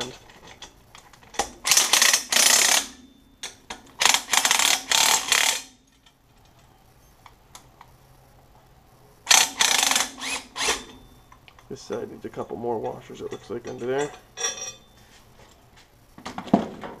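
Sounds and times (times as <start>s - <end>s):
cordless power driver running bolts: 1.4s - 3.0s, 4.0s - 5.8s, 9.3s - 11.0s.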